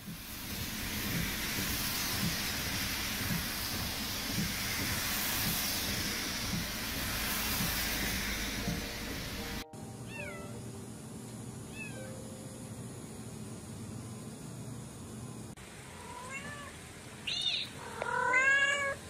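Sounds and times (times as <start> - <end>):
heavy rain on a car: 0.0 - 9.6
kitten meowing: 17.3 - 19.0.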